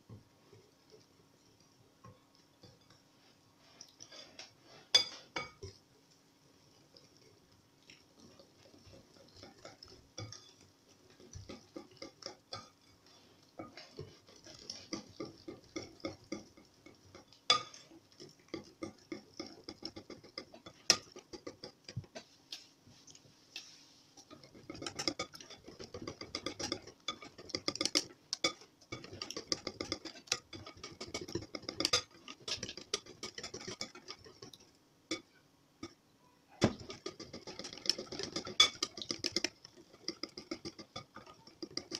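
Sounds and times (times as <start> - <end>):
whisk ticking against glass bowl: 8.2 - 22.3, 24.2 - 36.0, 36.6 - 41.9.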